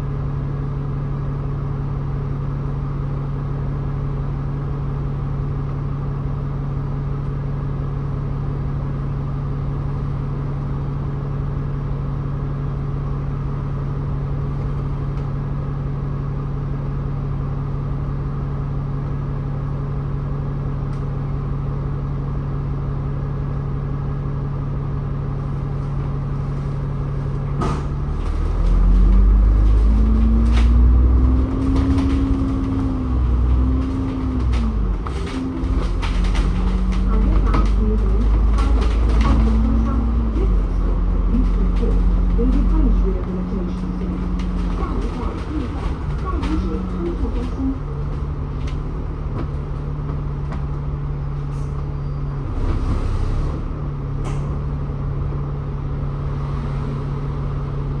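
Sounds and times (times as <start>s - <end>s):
bus engine idling and accelerating: 0.0s - 58.0s
click inside bus: 5.6s - 6.0s, 7.2s - 7.4s, 14.4s - 15.4s, 20.8s - 21.4s, 25.6s - 55.4s.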